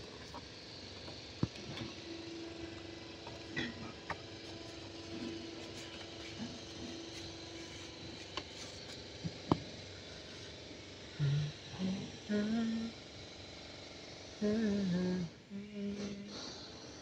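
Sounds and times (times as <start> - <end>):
steady background hum: 0.0 - 17.0
person humming: 11.1 - 13.0, 14.4 - 16.6.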